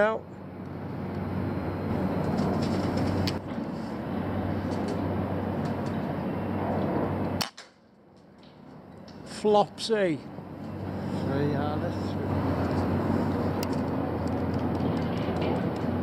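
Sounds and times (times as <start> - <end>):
air rifle shots: 7.4 - 7.8.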